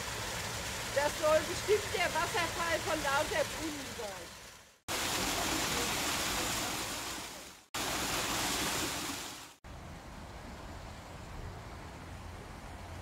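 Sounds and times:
water rushing from small waterfall: 0.0s - 9.6s.

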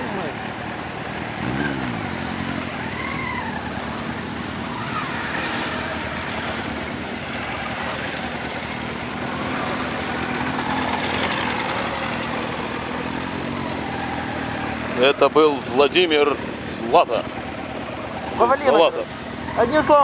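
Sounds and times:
motorcycle engines idling: 0.0s - 20.0s
motorcycle passing close: 0.0s - 20.0s.

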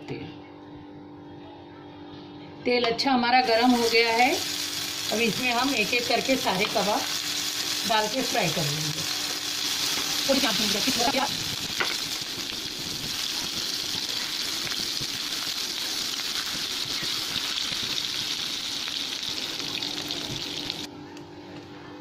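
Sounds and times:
patties sizzling in hot oil: 3.4s - 20.9s.

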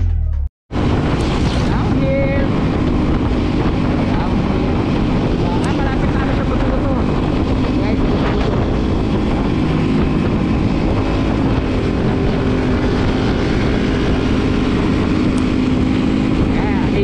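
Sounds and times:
motorcycle engine humming: 0.7s - 17.0s
rushing noise: 0.7s - 17.0s.

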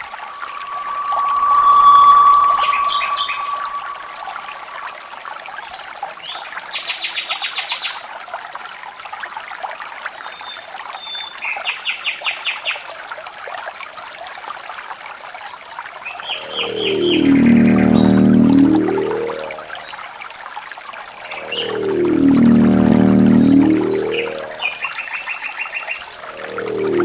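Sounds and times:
rapid high chirps: 0.0s - 4.9s, 16.3s - 19.7s.

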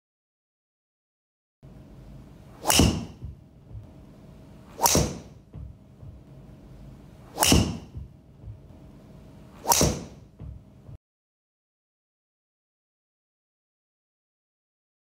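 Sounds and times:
golf driver striking ball: 2.6s - 3.4s, 4.7s - 5.4s, 7.3s - 8.0s.

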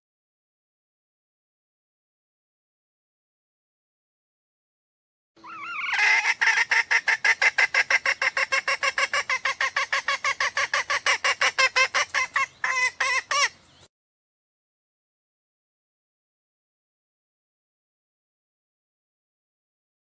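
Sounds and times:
junglefowl hen calling: 5.4s - 13.7s.

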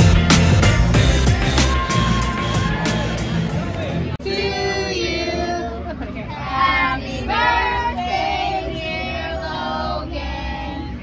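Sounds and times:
children singing: 4.2s - 5.7s.

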